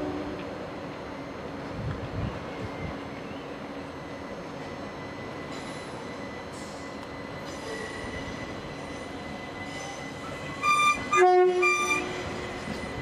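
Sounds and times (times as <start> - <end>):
two-tone train horn: 0.0 - 0.5, 10.6 - 12.4
train rumble: 0.0 - 13.0.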